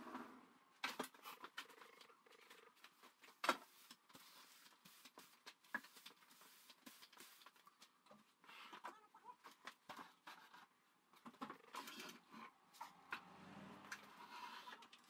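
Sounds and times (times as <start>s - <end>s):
broom brushing floor: 2.8s - 7.8s.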